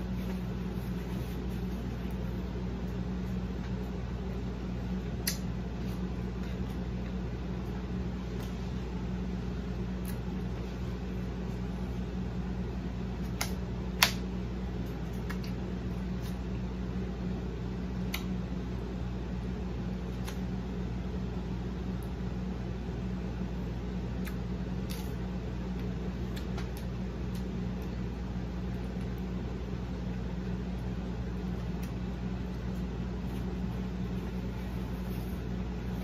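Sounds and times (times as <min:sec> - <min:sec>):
fan humming: 0:00.0 - 0:36.0.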